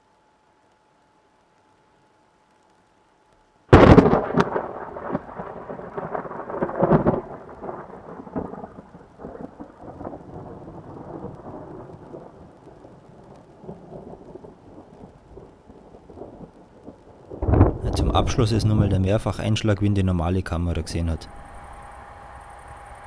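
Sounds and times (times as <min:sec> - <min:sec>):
thunder crack and rumble: 0:03.7 - 0:19.8.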